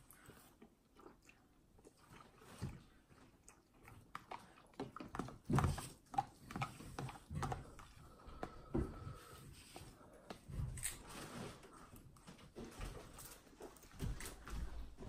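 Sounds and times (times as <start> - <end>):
person slurping and chewing noodles: 0.0 - 11.0.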